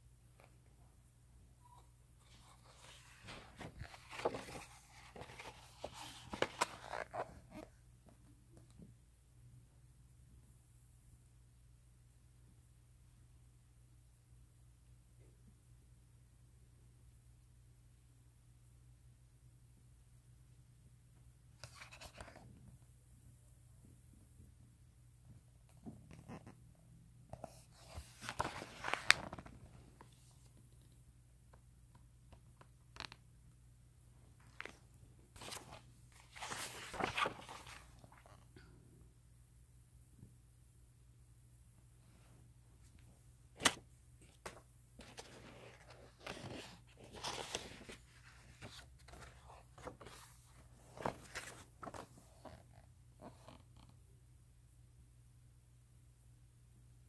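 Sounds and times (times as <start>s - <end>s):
paper page rustling: 2.2s - 7.5s, 27.4s - 30.5s, 35.4s - 38.4s, 43.6s - 52.3s.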